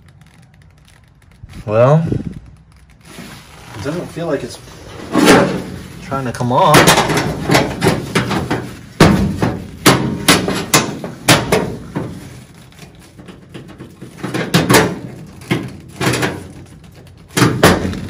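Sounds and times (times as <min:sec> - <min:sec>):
metallic knocks and clanks: 0:06.7 - 0:12.2.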